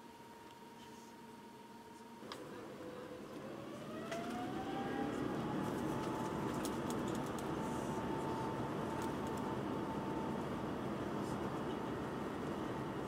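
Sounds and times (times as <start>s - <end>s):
jet engine whine in cabin: 0.0s - 13.0s.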